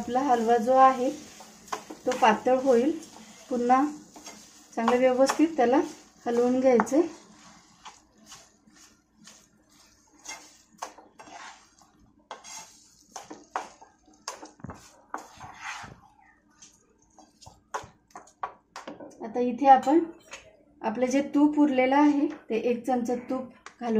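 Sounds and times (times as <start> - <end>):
utensil scraping a cooking pan: 0.0 - 16.1.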